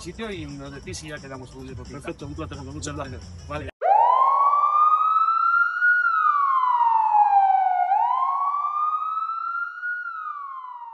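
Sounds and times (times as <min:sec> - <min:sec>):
siren wail: 0:03.8 - 0:10.9.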